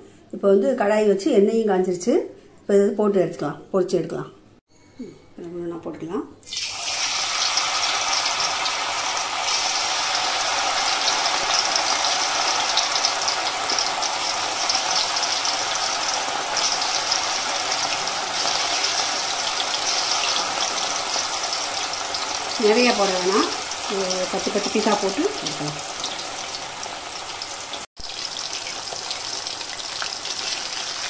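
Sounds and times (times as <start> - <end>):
chicken deep-frying in oil: 6.5 - 31.0.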